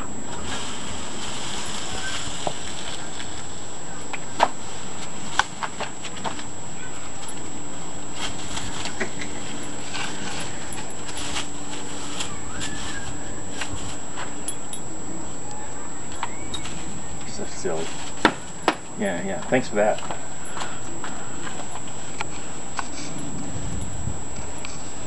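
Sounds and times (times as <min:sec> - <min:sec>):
broom scraping dry leaves on concrete: 0:00.3 - 0:03.6, 0:08.1 - 0:14.4, 0:17.6 - 0:18.2.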